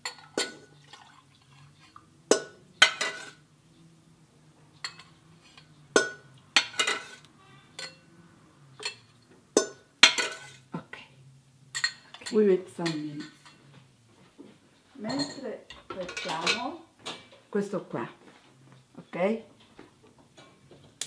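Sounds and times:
metal ladle clinking on pot and glass: 0.0s - 1.2s, 1.8s - 3.4s, 4.8s - 8.1s, 8.8s - 10.6s, 11.7s - 13.6s, 15.1s - 16.7s
liquid pouring: 0.4s - 2.0s.

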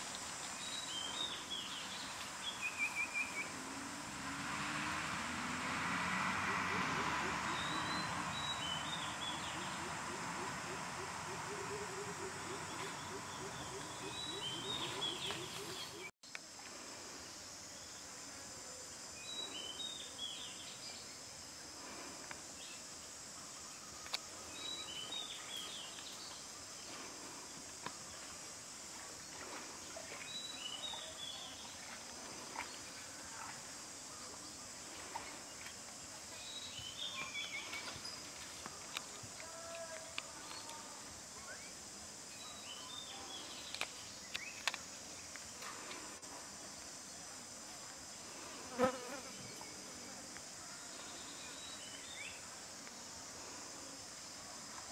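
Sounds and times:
bird chirping: 6.9s - 16.1s.

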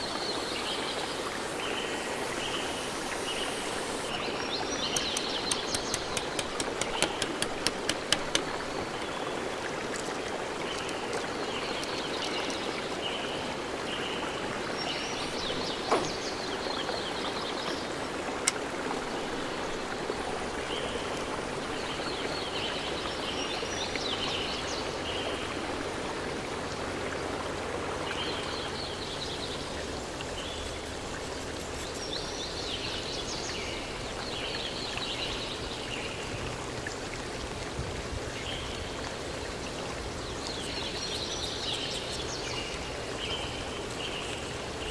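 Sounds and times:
outdoor background hiss: 0.0s - 44.9s
sharp clicks: 4.9s - 8.6s.

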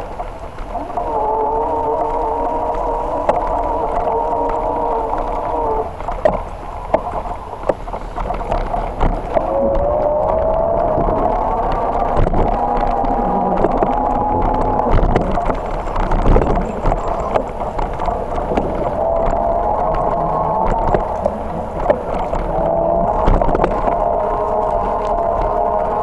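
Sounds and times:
bicycle rattling over bumps: 5.9s - 26.0s
bicycle tyre whine: 9.2s - 26.0s.

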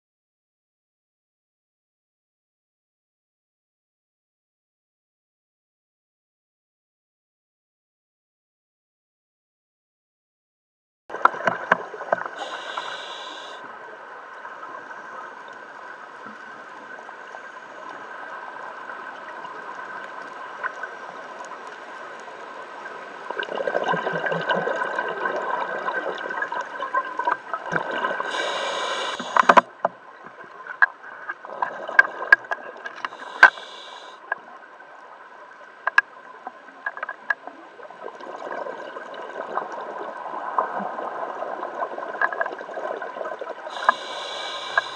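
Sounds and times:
faint steady hum: 11.4s - 38.6s, 43.1s - 44.9s
regulator hissing: 12.4s - 13.6s, 28.3s - 29.6s, 33.1s - 34.2s, 43.7s - 44.9s
bubbles gurgling underwater: 23.3s - 28.4s, 38.0s - 43.6s.

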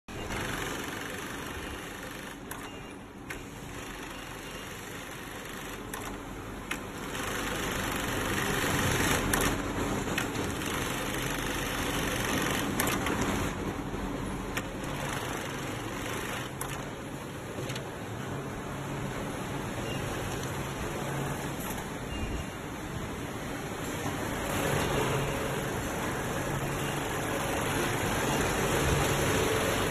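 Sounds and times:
sewing machine running: 0.1s - 2.8s, 3.4s - 6.2s, 6.9s - 13.6s, 14.6s - 16.9s.

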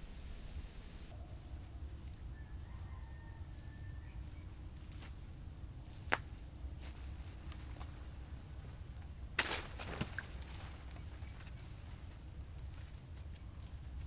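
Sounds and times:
low steady rumble: 0.0s - 14.0s
banana stalk snapping: 9.4s - 10.3s
stalk and dry leaves tearing: 9.4s - 11.0s.

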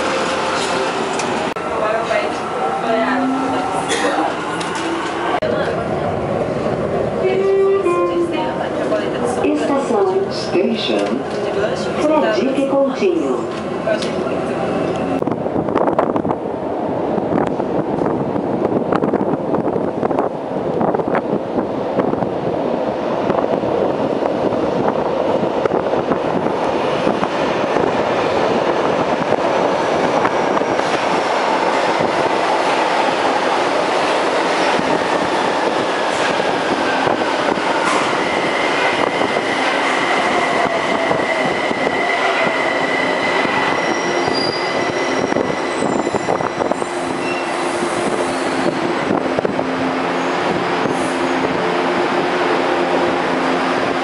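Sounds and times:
subway train running: 0.0s - 54.0s
wheels and brakes squealing: 41.1s - 48.6s.

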